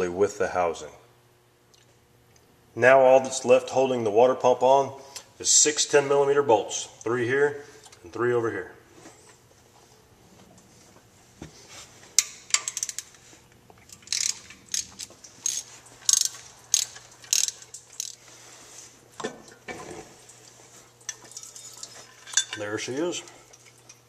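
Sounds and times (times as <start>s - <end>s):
ratchet wrench clicking: 12.2s - 13.1s, 13.9s - 18.2s.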